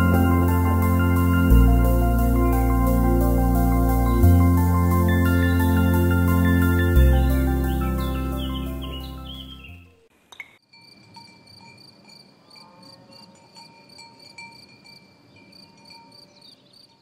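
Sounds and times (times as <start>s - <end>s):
music: 0.0s - 9.9s.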